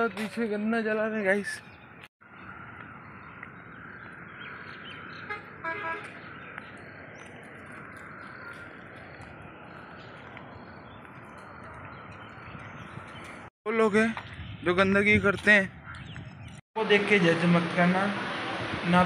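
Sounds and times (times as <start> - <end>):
street traffic noise: 0.0 - 19.0
vehicle horn toot: 5.3 - 6.2.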